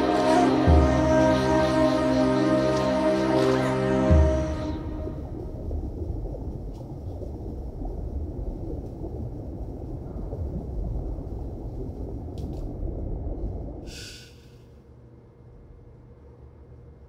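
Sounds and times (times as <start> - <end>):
low steady rumbling: 0.0 - 14.0.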